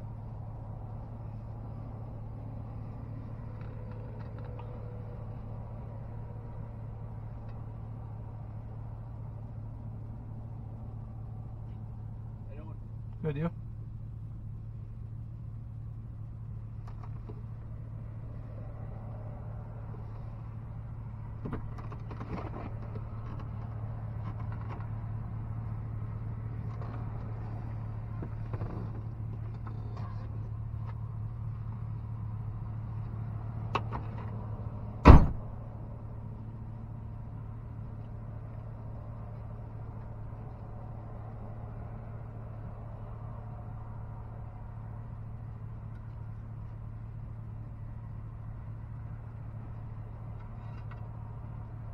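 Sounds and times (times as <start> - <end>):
vehicle door shutting: 35.0 - 35.6.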